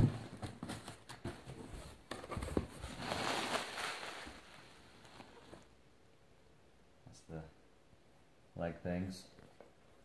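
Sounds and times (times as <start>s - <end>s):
bubble wrap rustling and crinkling: 0.0s - 5.7s.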